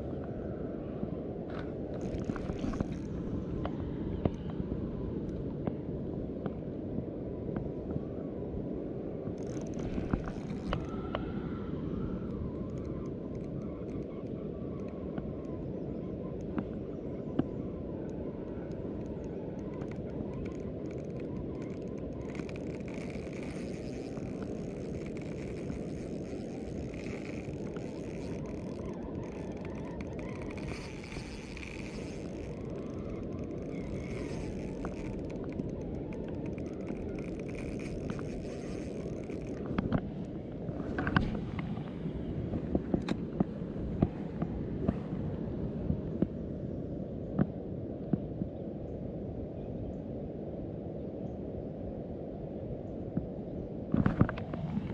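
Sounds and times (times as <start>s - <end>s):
wind rumble on microphone: 0.0s - 54.9s
faint clicks: 1.5s - 4.6s, 9.4s - 11.4s, 12.1s - 15.7s, 16.3s - 41.9s.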